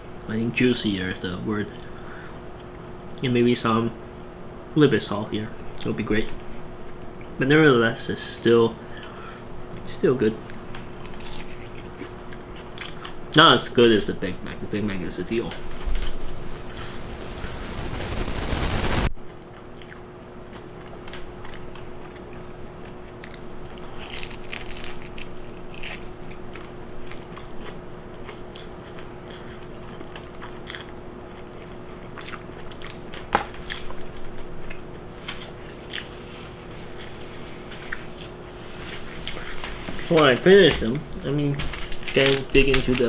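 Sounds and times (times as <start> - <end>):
steady low hum: 0.0 - 43.0
crunchy bites: 11.0 - 12.2, 23.1 - 31.1
person biting and chewing: 11.0 - 13.2, 19.6 - 22.2, 22.8 - 36.2.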